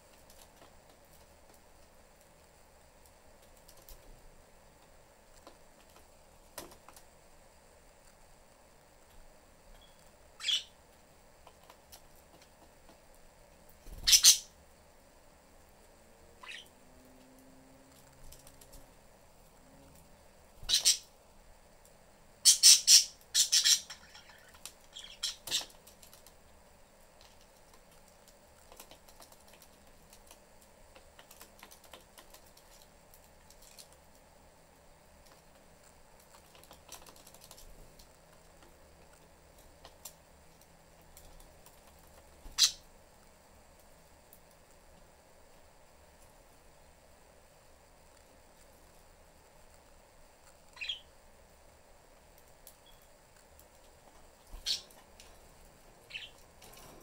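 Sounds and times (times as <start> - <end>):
budgies squawking: 10.4 - 10.7, 16.4 - 16.7, 20.7 - 21.0, 22.5 - 25.7.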